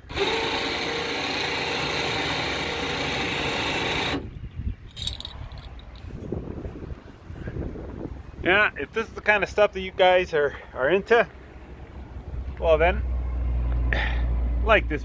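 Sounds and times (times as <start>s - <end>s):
electric winch motor whirring: 0.0s - 4.3s.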